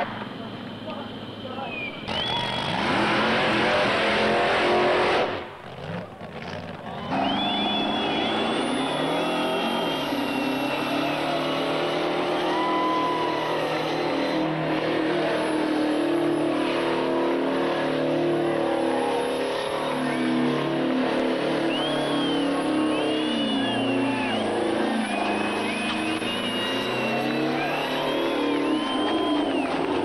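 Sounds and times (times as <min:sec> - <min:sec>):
voices: 0:00.0 - 0:02.7
truck engine at high revs: 0:00.0 - 0:30.0.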